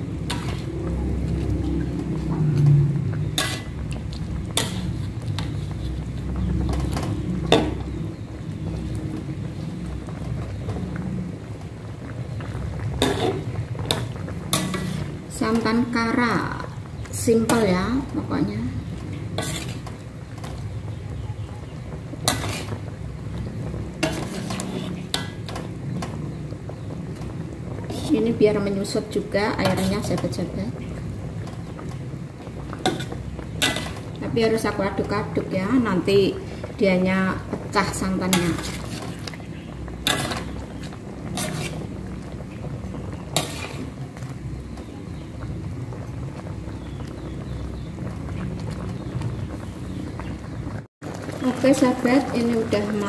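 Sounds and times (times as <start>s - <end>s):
low rumble: 0.0s - 27.9s
metal spatula scraping a wok: 0.2s - 0.8s, 3.2s - 3.8s, 4.5s - 6.0s, 12.9s - 15.2s, 19.1s - 20.0s, 22.2s - 22.8s, 24.0s - 25.5s, 32.8s - 34.1s, 38.3s - 39.4s, 40.0s - 42.0s, 43.3s - 44.0s.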